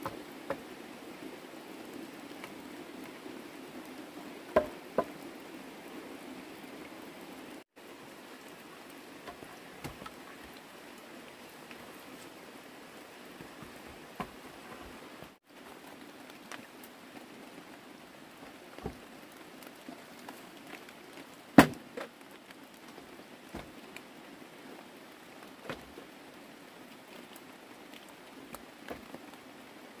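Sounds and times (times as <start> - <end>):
rain hiss and patter: 0.0 - 30.0
wooden stick knocking: 4.6 - 5.1.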